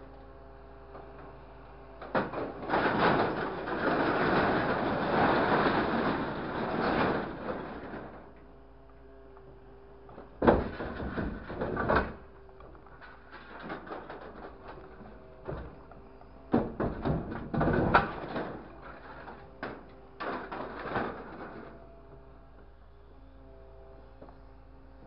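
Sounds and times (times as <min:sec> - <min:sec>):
truck engine and hydraulics hum: 0:00.0 - 0:25.0
sheet metal clattering and scraping: 0:02.0 - 0:08.3, 0:10.4 - 0:12.3, 0:12.9 - 0:15.8, 0:16.5 - 0:21.8.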